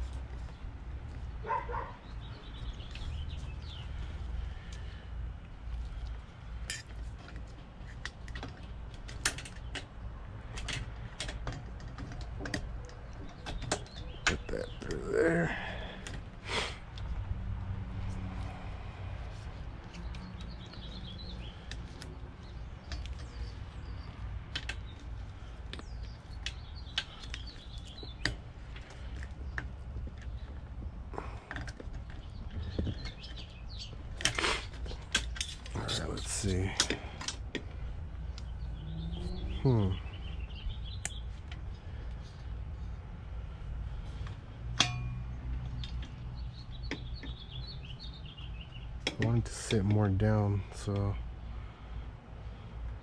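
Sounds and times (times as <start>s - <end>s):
birds chirping: 0.0s - 53.0s
metal hardware clicks and taps: 10.5s - 14.5s, 24.4s - 25.1s, 36.6s - 37.7s, 44.2s - 46.3s, 49.0s - 50.0s.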